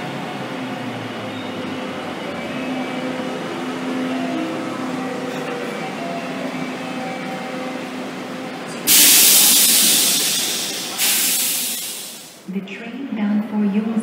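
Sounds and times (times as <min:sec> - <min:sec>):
electric train running: 0:00.0 - 0:12.4
loud hiss: 0:08.9 - 0:12.4.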